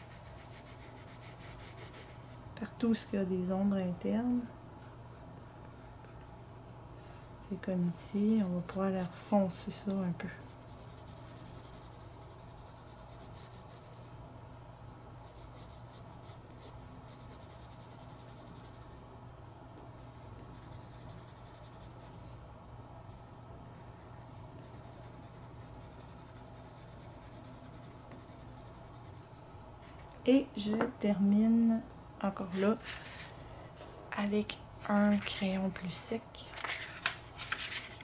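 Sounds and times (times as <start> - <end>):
pencil scratching on paper: 0.0 - 2.2, 4.8 - 6.0, 10.3 - 14.1, 20.4 - 22.1, 24.6 - 29.5
steady low hum: 0.0 - 38.0.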